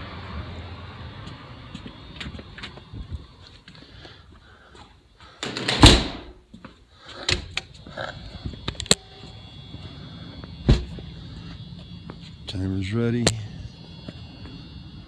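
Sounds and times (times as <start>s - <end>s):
door closing with a thump: 5.4s - 6.4s, 10.6s - 10.9s.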